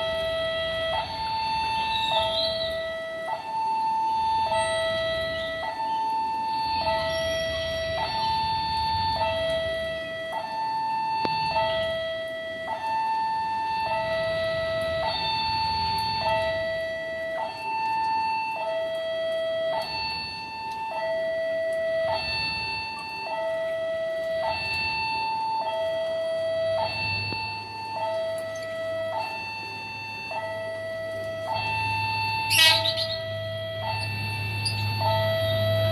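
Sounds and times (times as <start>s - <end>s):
level crossing two-tone alarm: 0.0s - 35.9s
low steady hum: 0.0s - 35.9s.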